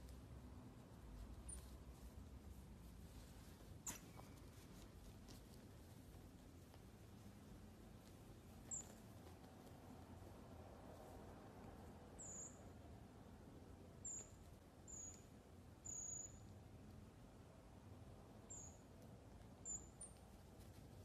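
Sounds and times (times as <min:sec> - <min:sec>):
faint room hiss: 0:00.0 - 0:21.0
marmosets squeaky calls: 0:08.7 - 0:09.0, 0:14.0 - 0:16.4.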